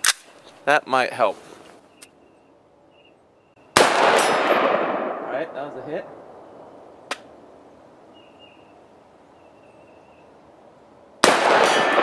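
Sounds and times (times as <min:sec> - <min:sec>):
gunshot with long echo: 0:03.8 - 0:05.4, 0:11.2 - 0:12.0.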